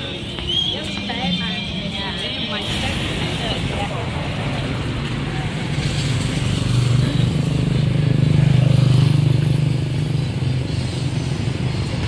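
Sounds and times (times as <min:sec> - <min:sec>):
traffic noise: 0:00.0 - 0:12.0
motorcycle passing by: 0:05.6 - 0:11.4.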